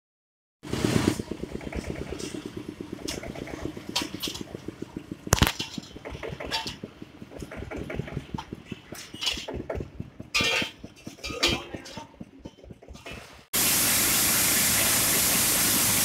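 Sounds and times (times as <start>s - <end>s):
small engine running: 0.6s - 16.0s.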